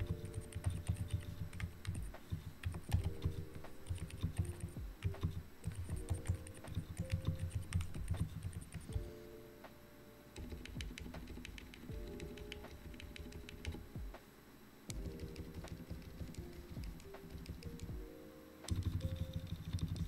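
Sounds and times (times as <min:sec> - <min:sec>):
typing on mechanical keyboard: 0:00.0 - 0:08.9, 0:10.4 - 0:13.8.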